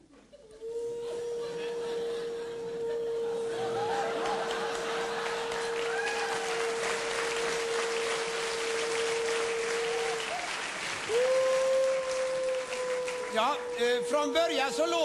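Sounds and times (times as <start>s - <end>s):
audience applauding: 3.4s - 15.0s.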